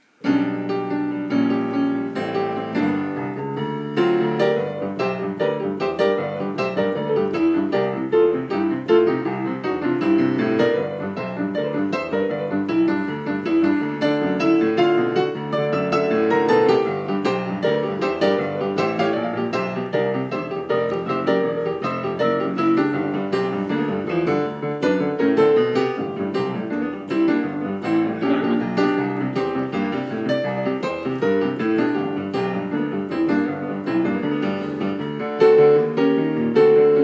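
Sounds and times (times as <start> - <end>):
fast piano tune on keyboard: 0.0 - 37.0.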